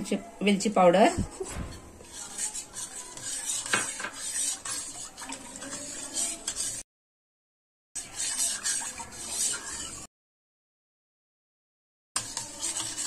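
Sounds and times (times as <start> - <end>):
spoon scraping metal bowl: 1.2 - 6.8, 8.0 - 10.1, 12.2 - 13.0.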